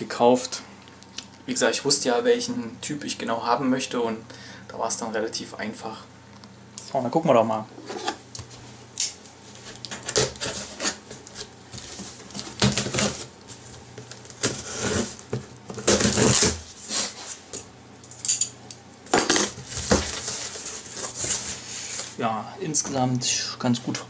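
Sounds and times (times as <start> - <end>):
cardboard flaps scraping: 9.5 - 17.4, 19.6 - 22.2.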